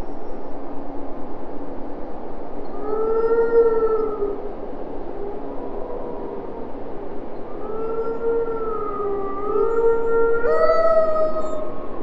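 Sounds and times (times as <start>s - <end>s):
wolves howling: 7.5s - 12.0s.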